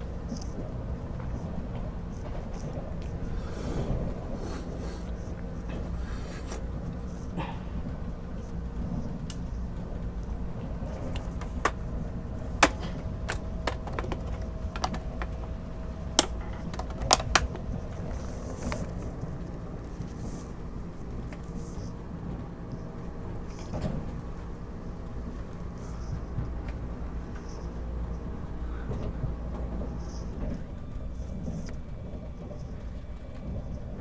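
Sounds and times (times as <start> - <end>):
train cabin rumble: 0.0 - 34.0
sharp clicks and knocks: 10.9 - 19.2.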